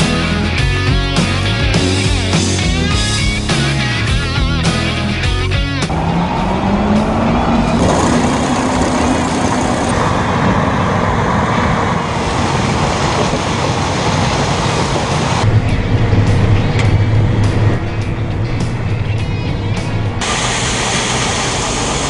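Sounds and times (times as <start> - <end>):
combine harvester running: 5.9 - 22.0.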